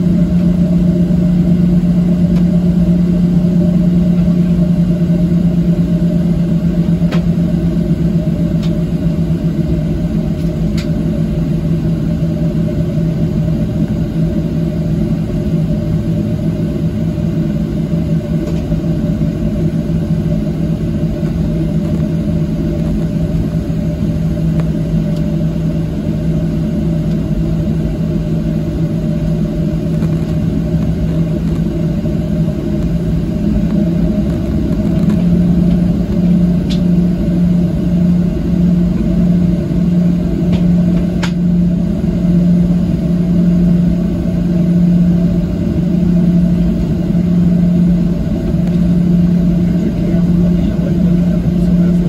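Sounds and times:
airplane cabin hum: 0.0 - 52.0.

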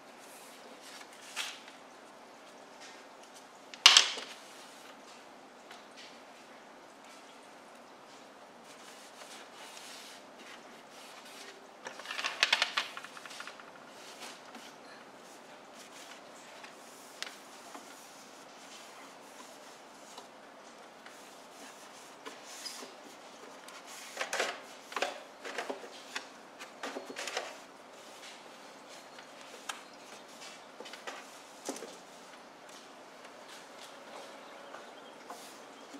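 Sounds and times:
hard objects clicking and clattering: 11.8 - 13.7.

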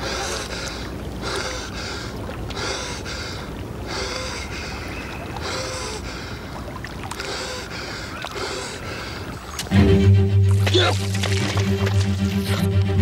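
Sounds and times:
man breathing heavily: 0.0 - 9.4.

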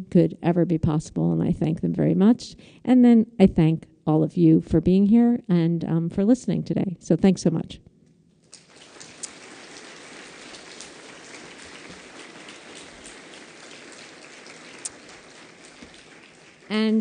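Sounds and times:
audience applauding: 8.6 - 17.0.

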